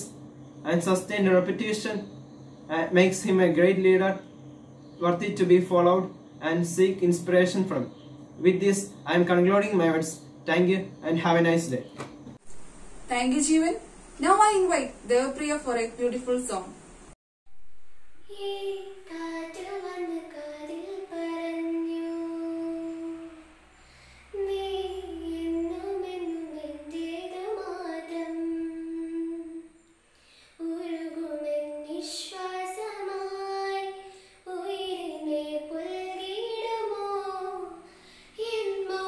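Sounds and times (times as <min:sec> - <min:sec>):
girl singing solo: 0:18.2 - 0:23.5, 0:24.2 - 0:29.7, 0:30.6 - 0:39.0.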